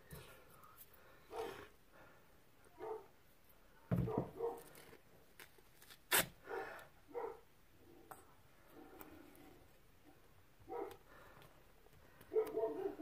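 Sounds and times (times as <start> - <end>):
dog barking: 2.8 - 3.1, 4.1 - 4.6, 6.5 - 7.4, 10.7 - 11.0, 12.3 - 13.0
duct tape ripping: 4.7 - 6.4.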